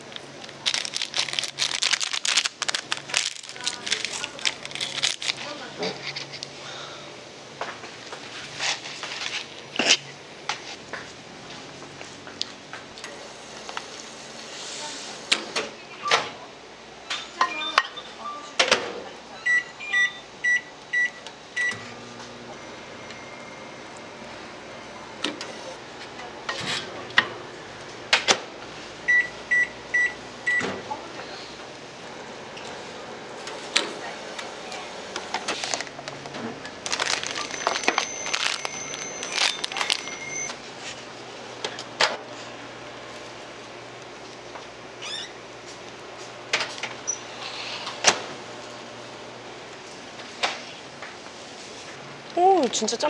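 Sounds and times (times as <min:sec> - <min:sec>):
plastic packaging crinkling: 0:00.0 - 0:06.2, 0:35.5 - 0:36.2, 0:36.8 - 0:40.5
microwave oven humming: 0:00.0 - 0:08.6, 0:09.6 - 0:52.9
high keypad beeps: 0:19.4 - 0:21.8, 0:37.4 - 0:40.5
steady high whine: 0:20.8 - 0:26.3.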